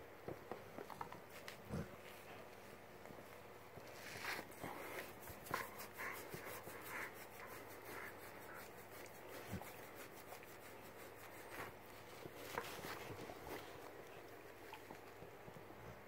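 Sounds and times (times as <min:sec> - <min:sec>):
fingers scratching fur: 0:03.8 - 0:13.9.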